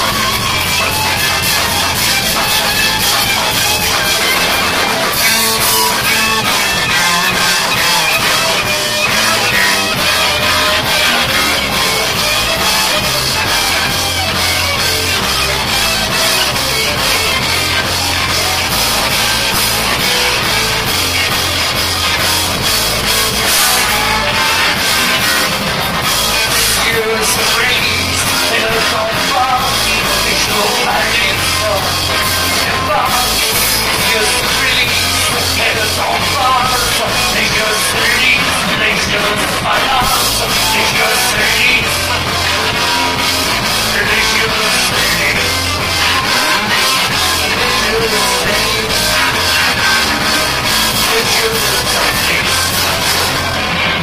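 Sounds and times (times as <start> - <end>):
rock band playing: 0.0 - 54.0.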